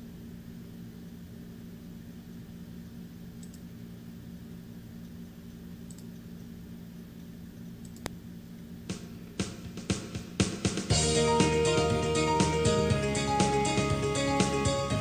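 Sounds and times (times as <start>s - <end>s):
faint clicks: 3.4s - 3.6s, 5.9s - 6.1s, 7.2s - 8.2s.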